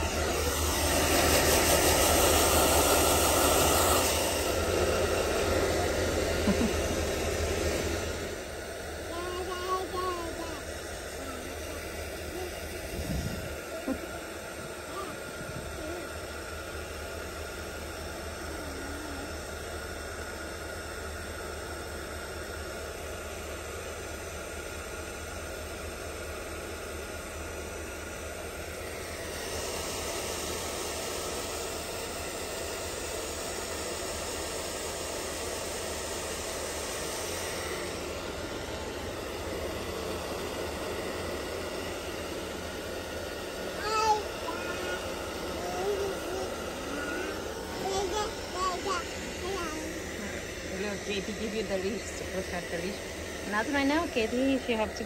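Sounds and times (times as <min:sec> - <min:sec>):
hair dryer running: 0:00.0 - 0:55.0.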